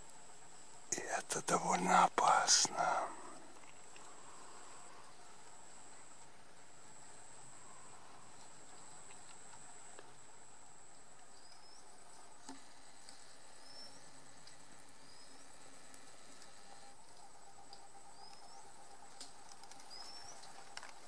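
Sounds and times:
faint clicks: 15.8s - 21.0s.

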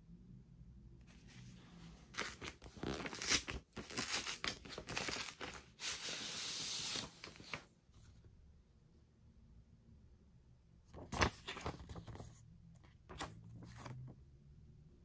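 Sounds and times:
paper envelope tearing: 2.1s - 7.6s, 11.0s - 12.3s.

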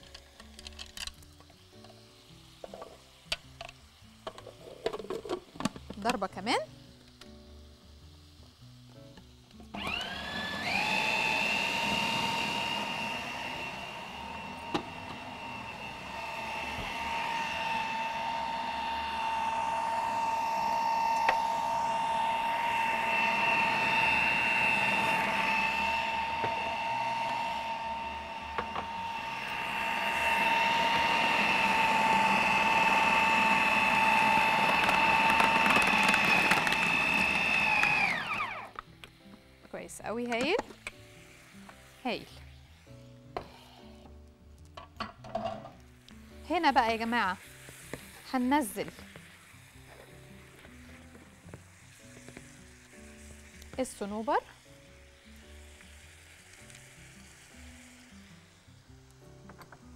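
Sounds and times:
food processor motor whining: 9.7s - 38.8s.

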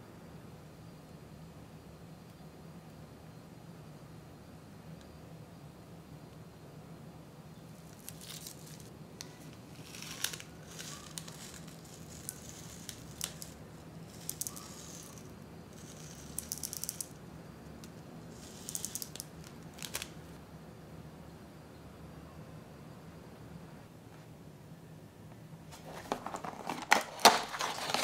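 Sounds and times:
sugar sprinkles rattling: 7.8s - 8.9s, 9.7s - 17.2s, 18.3s - 20.4s.

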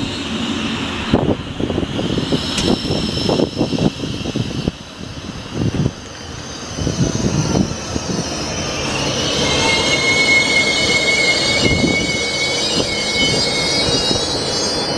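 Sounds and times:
train wheels rumbling on rails: 0.0s - 14.9s
high-pitched wheel squeal: 2.0s - 5.2s, 6.1s - 14.9s.

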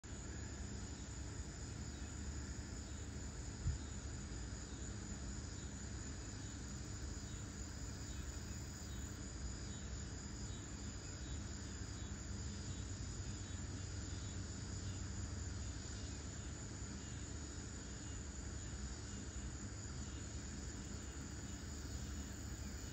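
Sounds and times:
insect chirring: 0.6s - 15.0s.

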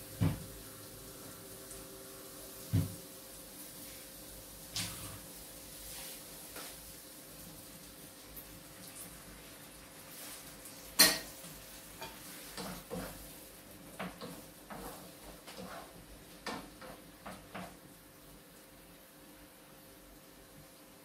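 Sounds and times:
utensil scraping frying pan: 10.1s - 17.8s.

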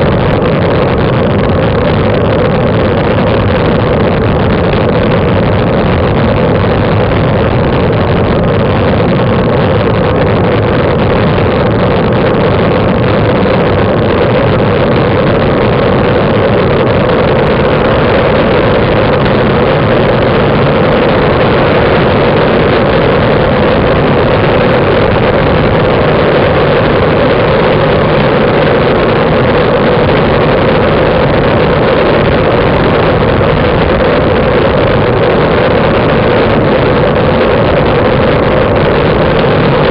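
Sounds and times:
wind and road rush: 0.0s - 39.9s.

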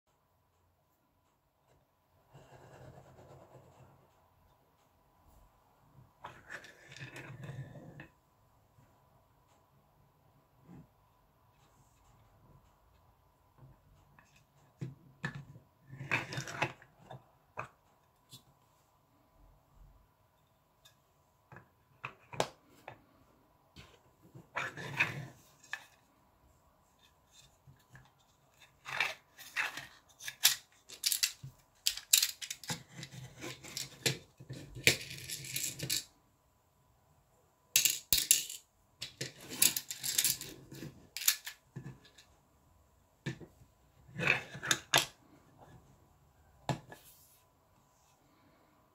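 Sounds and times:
screws rattling: 30.4s - 32.7s.

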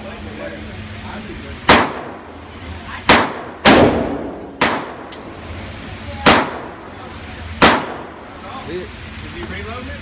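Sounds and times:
rifle shots echoing indoors: 1.7s - 2.2s, 3.1s - 5.2s, 6.2s - 6.8s, 7.6s - 8.1s.

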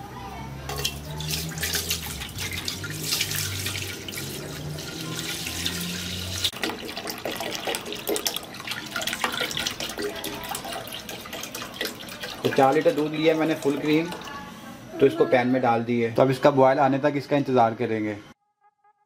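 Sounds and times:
milk pouring and splashing into pan: 0.7s - 14.3s.

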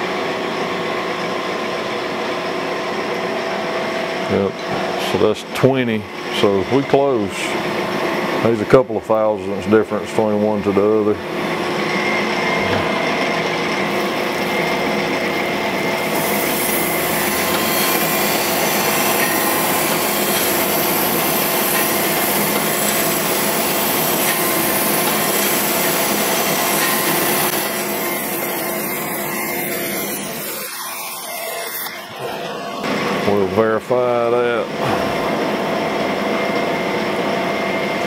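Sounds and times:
machine hum: 0.0s - 38.0s
grinding wheel on metal: 12.8s - 32.7s.

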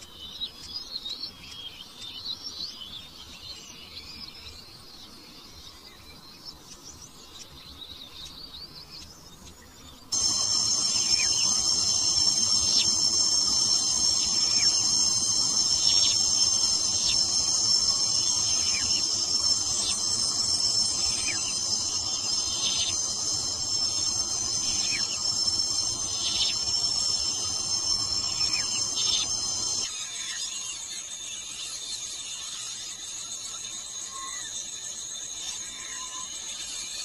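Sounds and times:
insects trilling: 9.7s - 37.0s.

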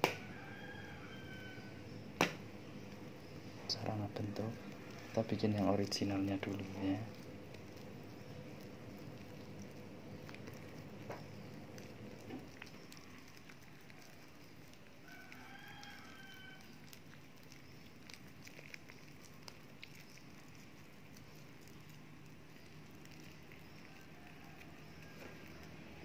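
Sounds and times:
dough squishing by hand: 0.0s - 26.0s
low room hum: 0.0s - 26.0s
faint animal call: 11.8s - 17.6s.

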